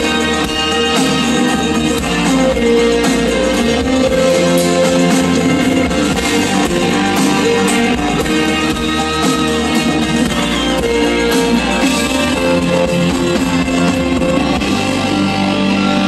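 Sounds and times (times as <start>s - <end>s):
bass guitar: 0.0s - 16.0s
drums: 0.0s - 16.0s
electric guitar: 0.0s - 16.0s
keyboards: 0.0s - 16.0s.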